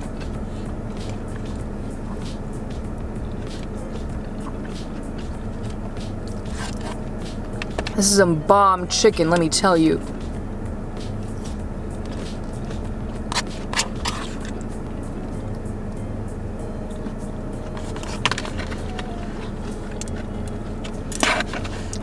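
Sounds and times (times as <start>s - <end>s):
car cabin hum: 0.0s - 22.0s
person chewing: 3.2s - 7.8s.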